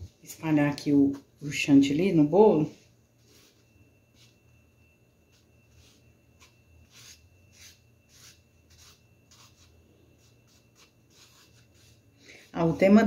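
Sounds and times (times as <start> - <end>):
low steady hum: 0.0 - 13.0
spatula scraping cream: 5.2 - 12.9.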